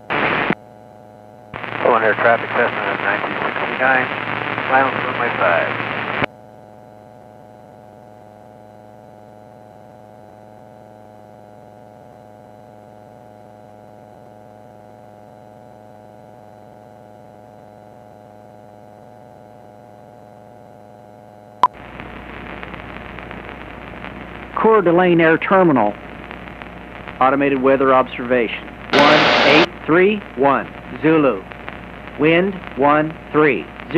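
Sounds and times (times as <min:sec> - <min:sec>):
radio static hiss: 0:00.0 - 0:00.6, 0:01.5 - 0:06.3, 0:21.6 - 0:33.9
steady intercom hum: 0:01.6 - 0:06.3, 0:21.8 - 0:33.9.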